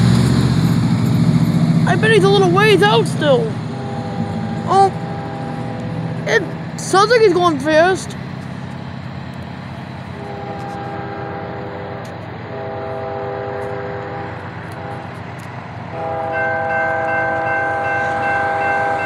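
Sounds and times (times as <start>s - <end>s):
low engine rumble: 0.0s - 19.0s
crossing signal bell ringing: 0.8s - 7.5s, 15.9s - 19.0s
locomotive air horn blasts: 3.7s - 6.2s, 10.1s - 15.2s, 15.9s - 19.0s.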